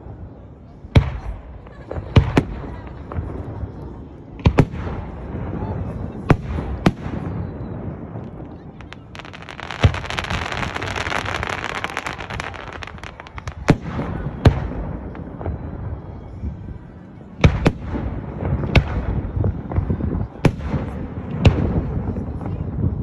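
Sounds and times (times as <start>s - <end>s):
firework booms: 0.9s - 16.6s, 17.4s - 23.0s
firework crackling: 1.0s - 16.5s.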